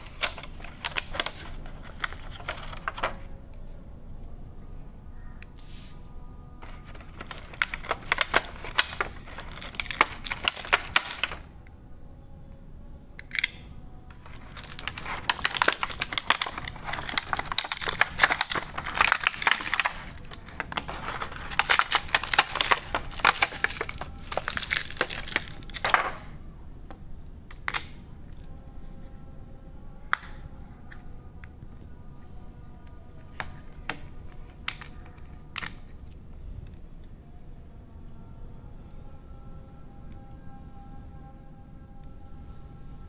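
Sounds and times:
plastic packaging crackling and clicking: 0.0s - 3.4s, 6.5s - 11.6s, 13.2s - 26.4s, 27.5s - 28.6s, 30.1s - 32.1s, 32.7s - 36.8s.

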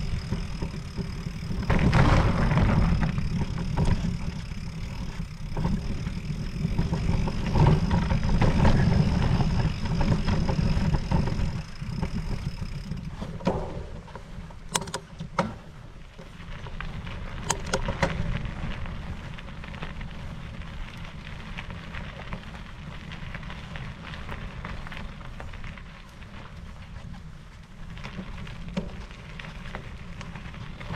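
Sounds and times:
faint high whine: 0.0s - 14.0s
tyres over rough ground: 0.0s - 30.9s
sharp clicks and knocks: 13.3s - 15.6s.

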